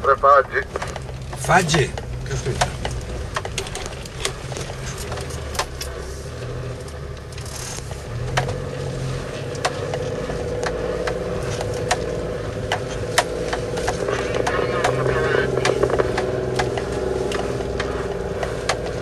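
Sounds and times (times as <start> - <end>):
engine running at low revs: 0.0 - 19.0
body knocks and rattles: 0.6 - 6.1
higher steady drone: 9.9 - 18.4.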